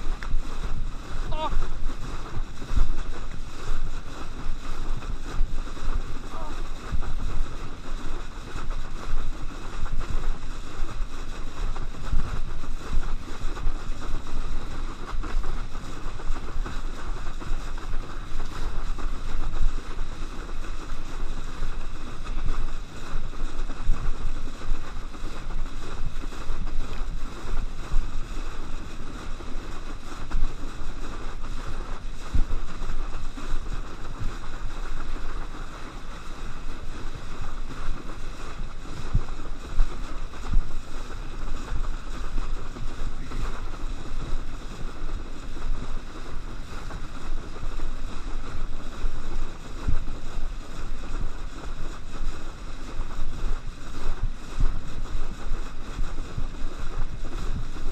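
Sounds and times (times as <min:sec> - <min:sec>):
water rushing: 0:00.0 - 0:10.4
wind buffeting microphone: 0:00.0 - 0:57.9.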